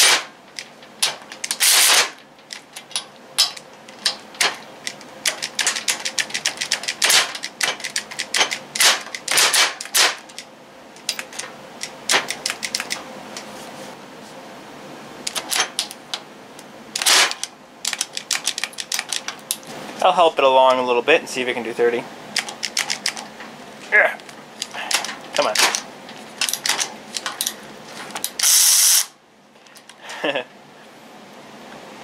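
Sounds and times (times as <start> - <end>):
ratchet wrench clicking on bolt: 28.4 - 29.1.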